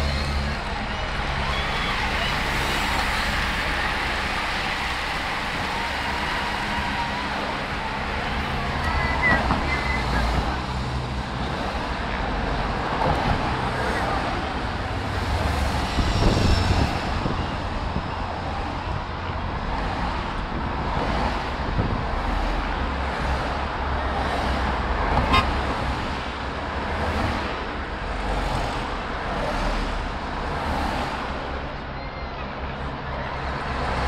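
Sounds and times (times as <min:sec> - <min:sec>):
cars passing close by: 0:00.0 - 0:31.8
car horn toot: 0:25.2 - 0:25.6.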